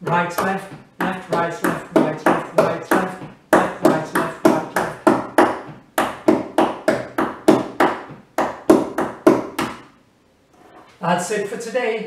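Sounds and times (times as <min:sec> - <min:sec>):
hands slapping a tabletop: 0:00.1 - 0:10.0.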